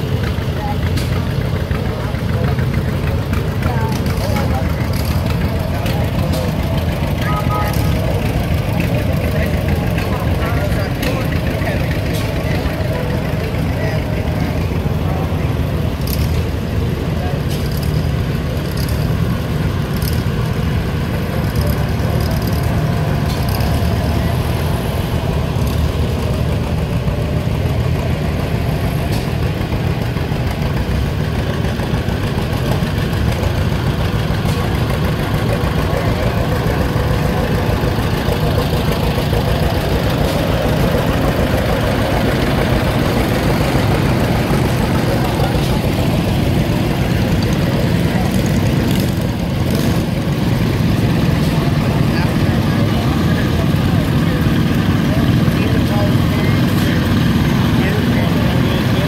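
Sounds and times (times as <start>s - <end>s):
tractor engines running: 0.0s - 59.0s.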